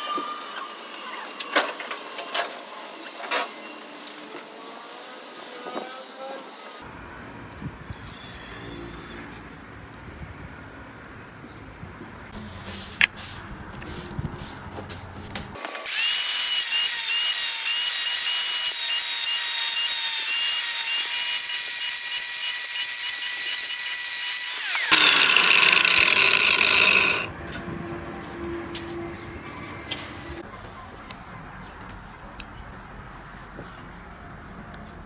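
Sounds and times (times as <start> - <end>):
angle grinder cutting metal: 15.6 - 27.3.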